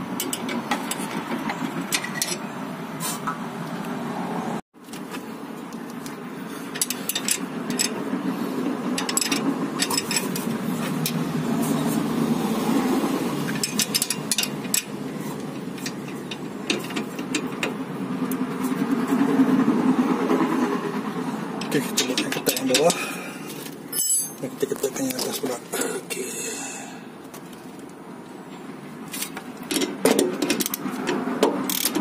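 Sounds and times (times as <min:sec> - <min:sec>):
spanners clinking on nuts: 0:09.0 - 0:11.2, 0:13.5 - 0:17.8, 0:23.9 - 0:24.5.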